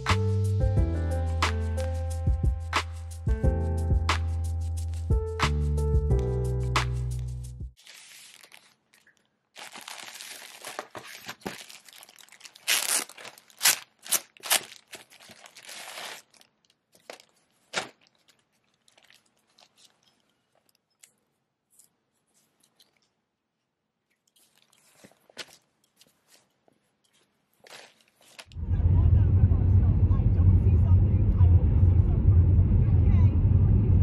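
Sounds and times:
paper tag handled: 7.0s - 23.1s, 24.3s - 28.6s
fabric rustling: 7.8s - 9.0s, 9.6s - 28.6s
plastic bag crinkling and ripping: 7.8s - 20.8s, 24.3s - 26.5s, 27.1s - 28.6s.

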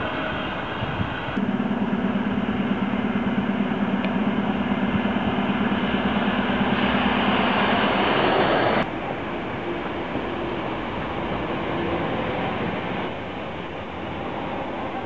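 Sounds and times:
arriving train running noise: 0.0s - 15.0s
steady low hum: 0.0s - 15.0s
faint high whine: 1.4s - 15.0s.

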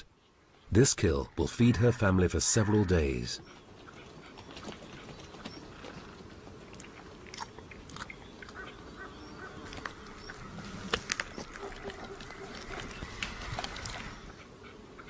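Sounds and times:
animal crunching and tearing carcass: 4.3s - 8.6s, 9.6s - 14.3s.

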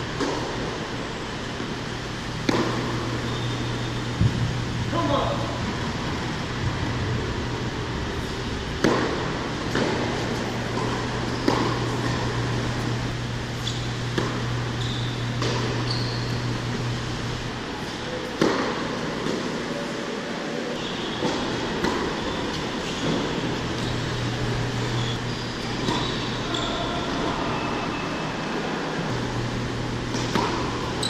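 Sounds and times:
ventilation hum: 0.0s - 31.0s
tennis ball bouncing: 0.1s - 0.7s, 2.4s - 3.6s, 8.2s - 12.9s, 13.6s - 16.0s, 18.3s - 19.5s, 21.2s - 23.9s, 25.7s - 26.7s, 30.1s - 31.0s
racket hitting tennis ball: 2.4s - 3.2s, 8.2s - 12.9s, 13.6s - 14.6s, 15.2s - 15.8s, 18.3s - 19.6s, 21.2s - 23.6s, 25.8s - 26.2s, 30.1s - 31.0s.

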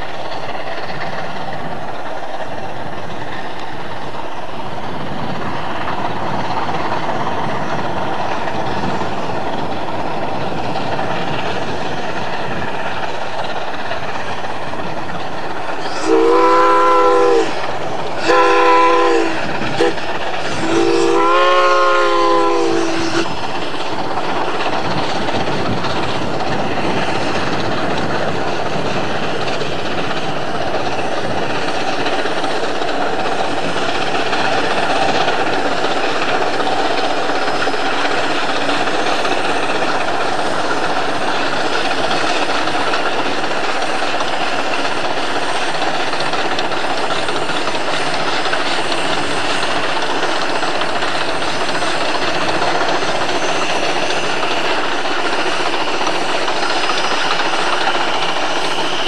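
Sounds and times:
steam locomotive working past: 0.0s - 59.0s
steam whistle blast: 15.8s - 23.4s.

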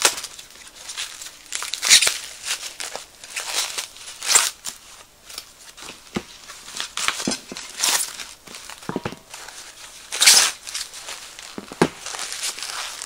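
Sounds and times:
plastic bags rustling and crinkling: 0.0s - 13.0s
metal legs knocking on cardboard: 8.8s - 9.3s.

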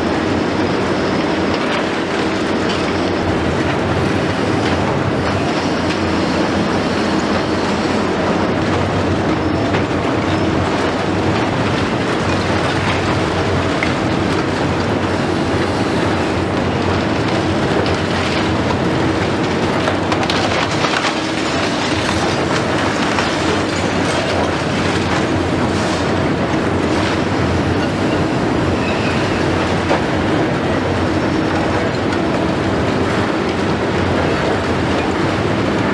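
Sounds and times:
excavator diesel engine: 0.0s - 35.9s
concrete cracking and knocking: 17.2s - 27.2s.

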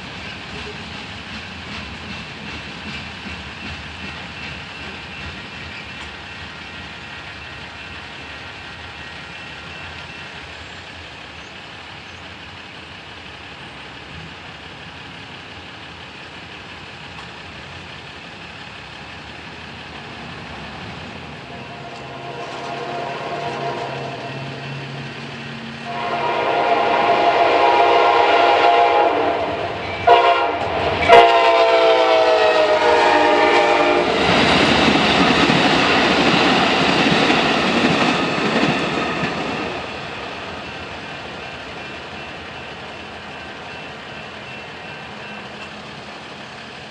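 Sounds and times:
train chime horn: 21.5s - 24.9s, 25.8s - 34.2s.

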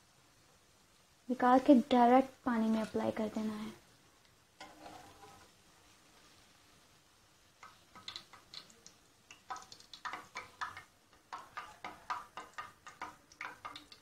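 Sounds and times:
food frying in hot oil: 0.0s - 14.0s
clicks and pops: 7.6s - 14.0s.

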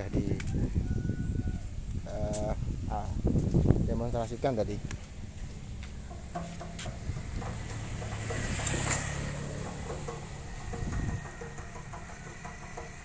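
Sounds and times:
diesel engine idling: 5.2s - 13.0s.

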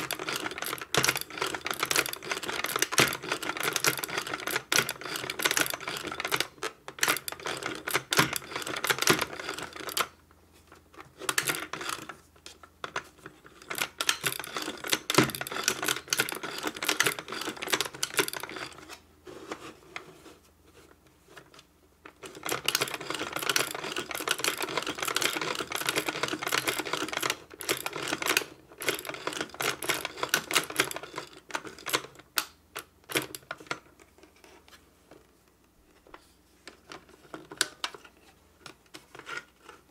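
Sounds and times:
toy sewing machine clattering: 0.0s - 10.2s, 13.5s - 18.8s, 22.2s - 32.2s.

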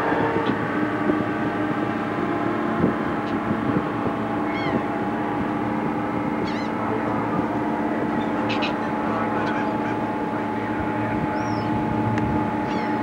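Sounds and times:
boat engines humming: 0.0s - 13.0s
gull calling: 4.4s - 4.9s, 6.4s - 7.0s, 8.1s - 10.2s, 11.2s - 11.8s, 12.6s - 13.0s.

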